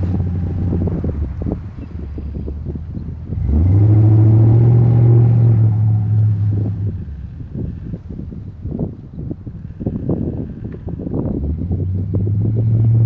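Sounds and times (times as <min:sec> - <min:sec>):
diesel truck engine revving: 0:00.0 - 0:01.7, 0:02.4 - 0:08.0, 0:11.3 - 0:13.0.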